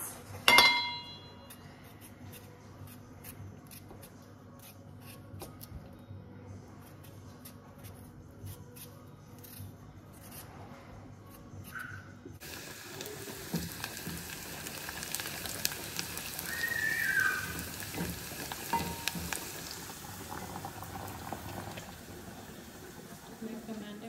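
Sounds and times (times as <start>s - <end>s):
knife scraping potato skin: 1.4s - 5.7s, 6.8s - 10.7s, 11.3s - 12.0s.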